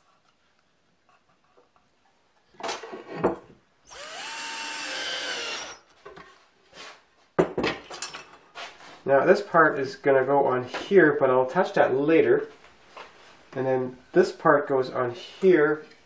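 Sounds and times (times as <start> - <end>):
cordless drill driving screw: 3.9 - 5.8.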